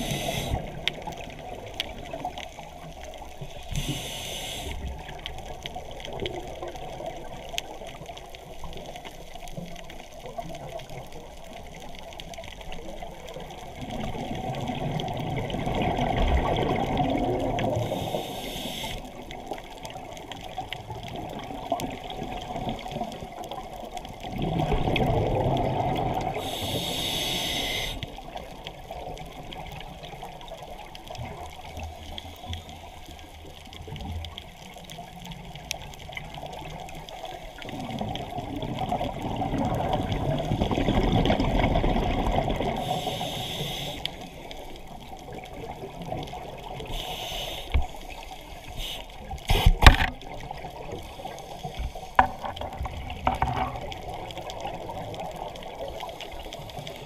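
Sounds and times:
short hissing bursts: 0.0s - 0.6s, 3.7s - 4.9s, 17.9s - 19.1s, 26.4s - 28.1s, 42.8s - 44.2s, 46.9s - 49.8s
muffled rushing water underwater: 0.0s - 57.0s.

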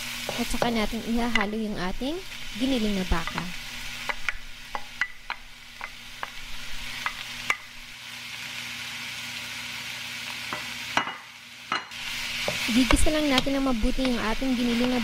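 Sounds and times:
meat sizzling in a pan: 0.0s - 15.0s.

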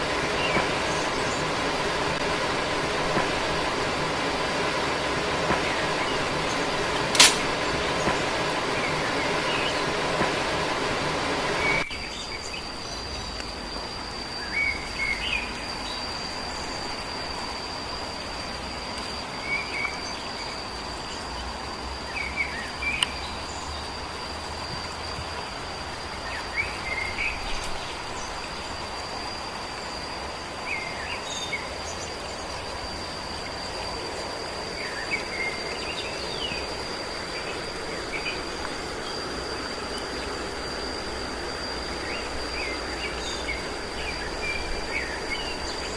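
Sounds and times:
even hiss: 0.0s - 45.9s
high-pitched insect trill: 0.0s - 45.9s.

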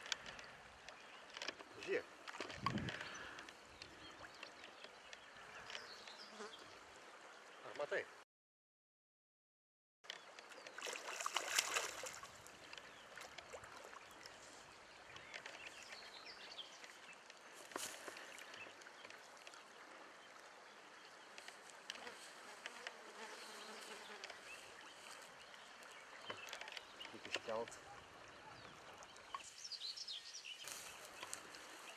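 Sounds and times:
river water trickling: 0.0s - 8.0s, 10.1s - 22.7s, 23.4s - 31.9s
insects buzzing: 21.4s - 25.3s.

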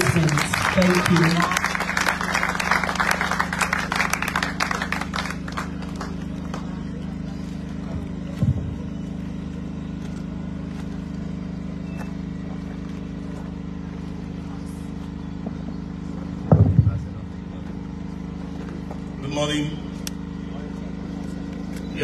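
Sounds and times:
audience applause: 0.0s - 7.4s
steady low hum: 0.0s - 22.0s
thump: 16.4s - 17.1s.

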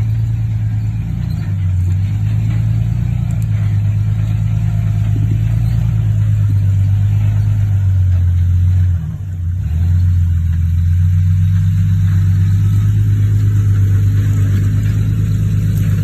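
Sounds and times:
car engine at low revs: 0.0s - 16.0s.

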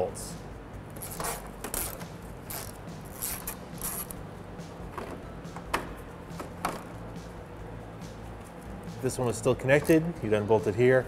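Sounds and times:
hand ratchet clicking: 1.0s - 4.2s.

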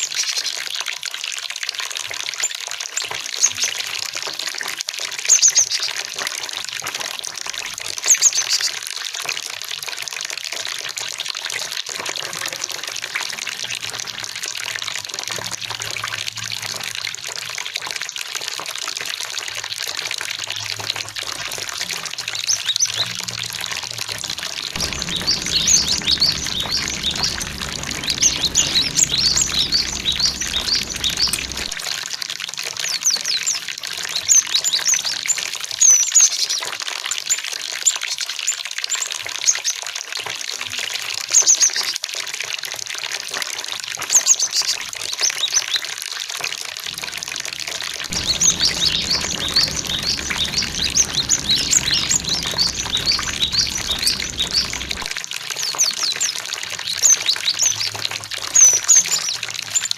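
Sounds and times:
water rushing: 23.2s - 32.0s, 46.8s - 55.4s
birds chirping: 24.2s - 31.8s, 48.0s - 55.2s.

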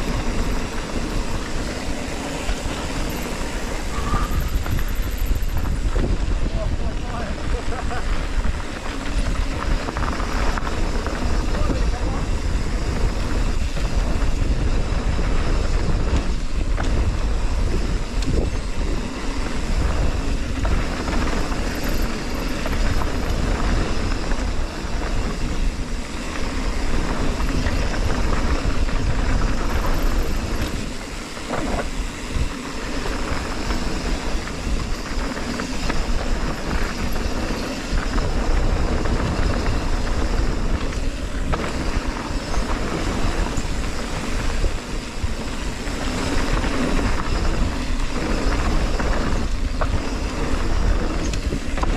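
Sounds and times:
bike tyres rumbling on rough ground: 0.0s - 51.9s
wind rushing over microphone: 0.0s - 51.9s.

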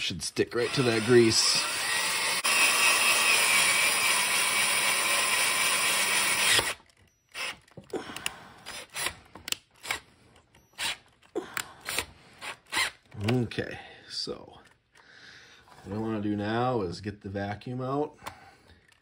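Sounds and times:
cordless drill drilling into metal: 0.5s - 7.8s, 8.6s - 9.2s, 10.7s - 11.0s.

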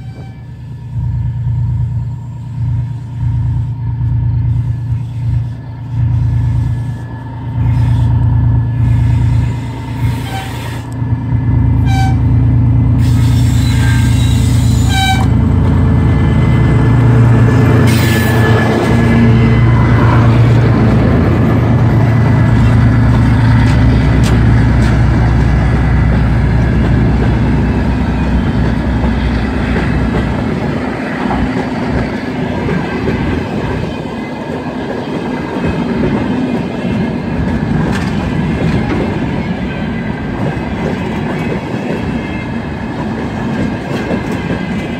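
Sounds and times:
locomotive horn blasts: 0.0s - 1.0s, 7.6s - 11.0s, 11.8s - 12.4s, 13.0s - 15.5s, 17.5s - 20.6s
diesel locomotive engine under load: 0.0s - 44.9s.

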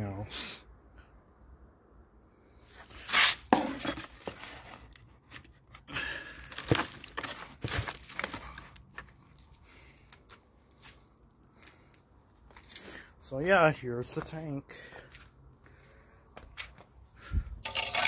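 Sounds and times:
cardboard packaging rustling: 6.4s - 9.5s.

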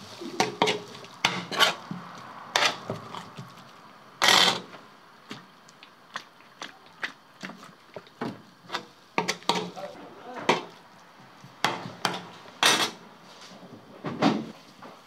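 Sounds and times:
metal spatula scraping steel pan: 0.4s - 1.8s, 2.5s - 2.8s.

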